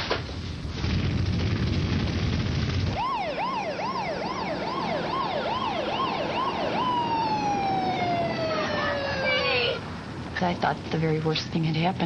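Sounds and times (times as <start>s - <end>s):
emergency vehicle siren: 2.9s - 10.2s.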